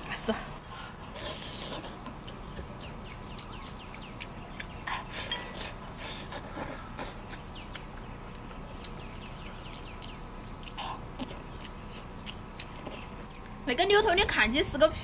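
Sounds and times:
wet chewing and sucking: 1.0 - 13.6.

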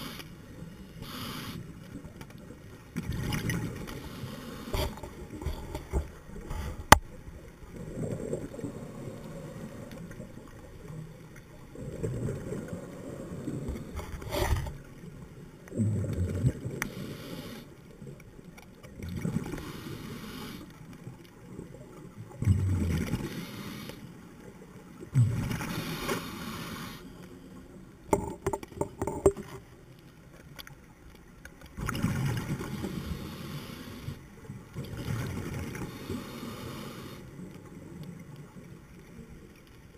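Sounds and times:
regulator inhalation hiss: 0.0 - 1.7, 16.9 - 17.7, 19.6 - 20.7, 23.3 - 24.0, 25.7 - 27.2, 35.9 - 37.3
exhaled bubbles gurgling: 2.9 - 17.2, 21.5 - 23.8.

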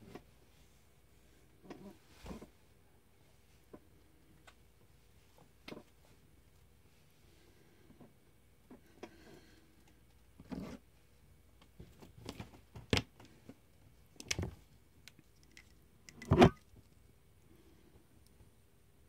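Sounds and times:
rustles and scrapes: 0.0 - 4.2, 10.4 - 10.9.

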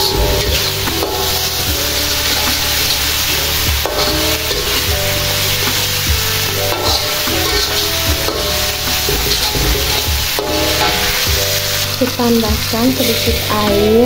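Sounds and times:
background music: 0.0 - 14.0
metal spatula scraping wok: 0.0 - 14.0
spice paste sizzling in oil: 0.0 - 14.0.

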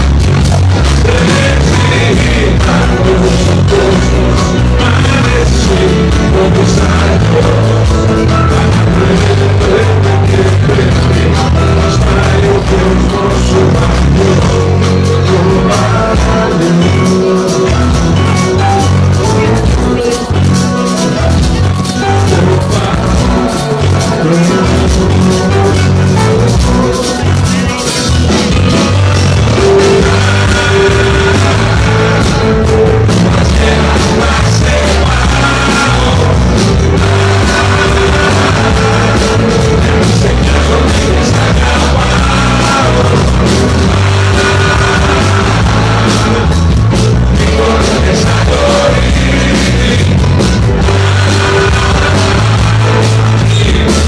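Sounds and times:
drums: 0.0 - 54.0
electric and acoustic guitars: 0.0 - 54.0.

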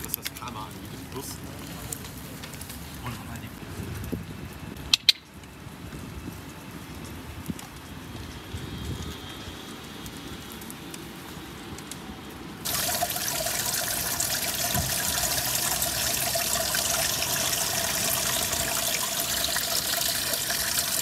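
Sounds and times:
water gurgling into drain: 12.6 - 21.0.

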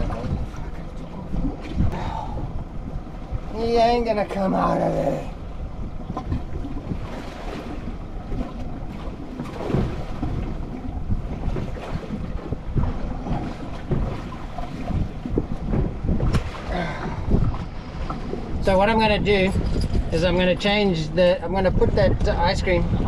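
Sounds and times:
water slapping boat hull: 0.0 - 23.0
wind buffeting microphone: 0.0 - 23.0.

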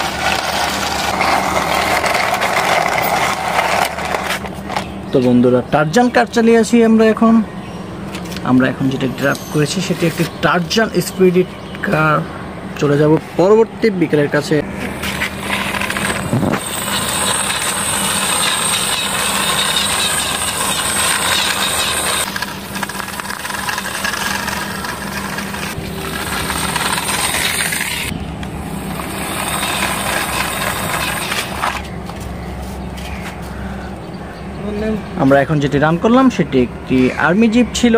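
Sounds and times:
plastic toy wheels rolling on concrete: 0.0 - 5.0, 15.0 - 32.2.

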